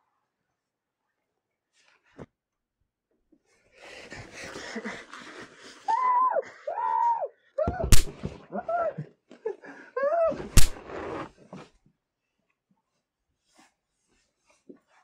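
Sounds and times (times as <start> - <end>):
rustling and shuffling: 10.4 - 15.0.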